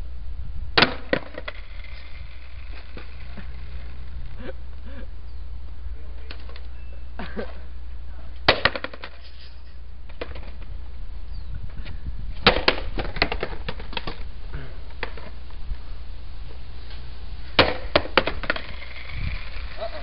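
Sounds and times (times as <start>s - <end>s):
skateboard bouncing clatter: 0.8s - 4.0s, 8.5s - 9.2s, 10.1s - 10.7s, 12.4s - 14.2s, 17.6s - 20.0s
skateboard slamming on asphalt: 0.8s - 4.0s, 8.5s - 9.2s, 10.1s - 10.7s, 12.4s - 14.3s, 17.6s - 20.0s.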